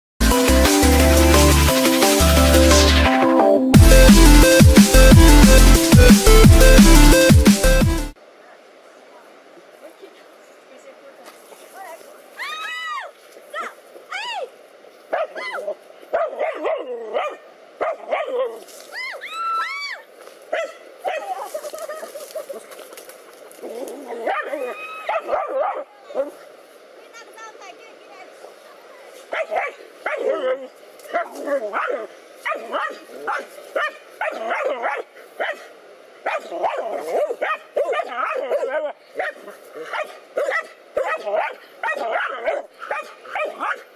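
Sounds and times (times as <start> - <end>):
dogs barking: 16.1 - 18.6, 20.5 - 21.6, 24.1 - 26.4, 29.3 - 43.9
dog yelping whines: 23.8 - 26.3.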